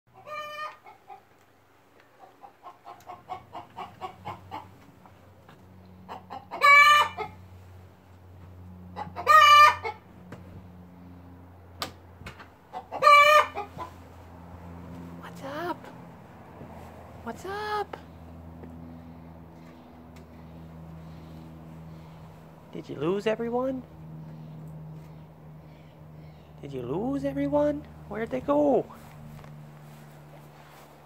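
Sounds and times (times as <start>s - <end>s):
chicken squawking: 0.2s - 1.2s, 2.2s - 4.8s, 6.0s - 7.4s, 8.9s - 10.1s, 12.7s - 14.0s
chicken clucking: 0.2s - 1.3s, 2.1s - 4.9s, 5.9s - 7.4s, 8.9s - 10.0s, 12.7s - 14.0s.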